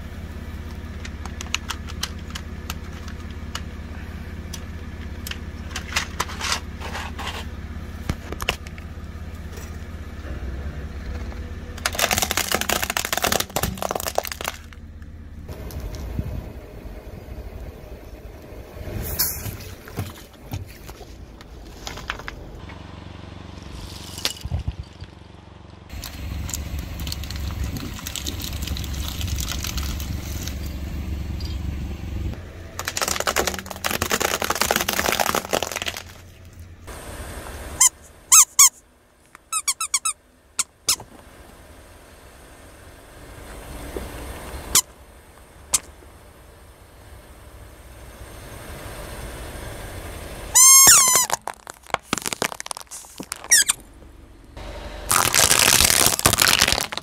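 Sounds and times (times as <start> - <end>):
objects crackling and crunching: 0.9 - 8.8, 11.8 - 14.8, 25.9 - 30.8, 32.8 - 36.6, 50.6 - 54.0, 55.1 - 57.0
short high squeaks: 37.8 - 38.8, 39.5 - 41.0, 50.5 - 53.9.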